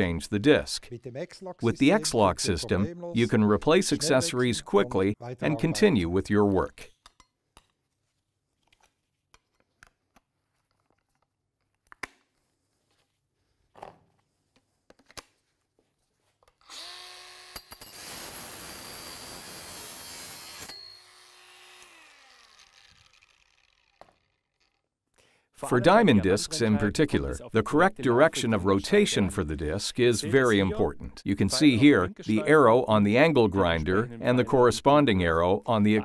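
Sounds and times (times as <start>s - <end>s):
angle grinder whine: 16.7s - 24.3s.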